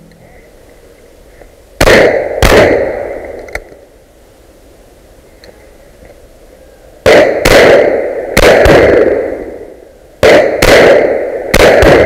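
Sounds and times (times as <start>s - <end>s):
shotgun shots: 1.8s - 3.4s, 7.0s - 12.0s.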